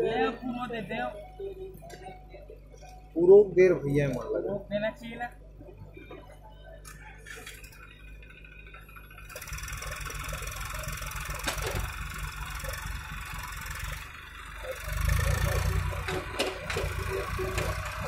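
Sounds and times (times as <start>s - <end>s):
tractor diesel engine chugging: 5.1s - 18.0s
backhoe loader digging: 6.8s - 18.0s.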